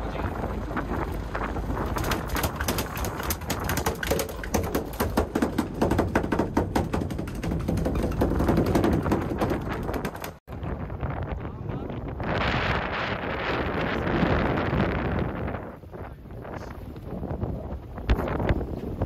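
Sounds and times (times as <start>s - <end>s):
wind noise on microphone: 0.0s - 19.0s
fish tail drumming on deck: 1.9s - 10.4s.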